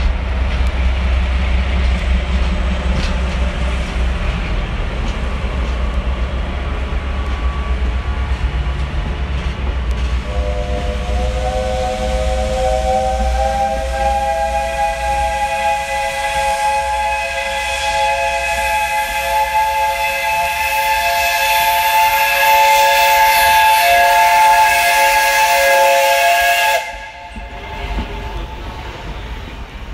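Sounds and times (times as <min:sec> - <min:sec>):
hiss of steam: 0:10.0 - 0:29.7
steam whistle blast: 0:10.2 - 0:27.5.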